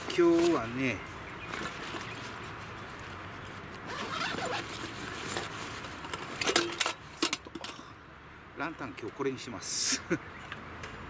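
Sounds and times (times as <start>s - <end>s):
zipper pulled open: 3.9s - 5.5s.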